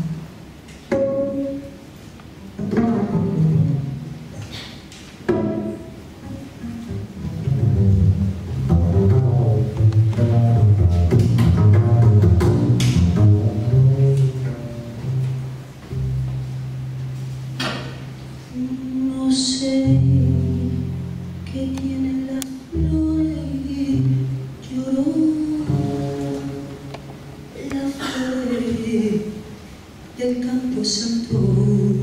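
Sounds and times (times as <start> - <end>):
double bass playing: 0.0 - 4.4, 5.2 - 29.4, 30.7 - 32.0
woman singing: 18.5 - 20.8, 21.4 - 26.6, 27.5 - 29.5, 30.2 - 32.0.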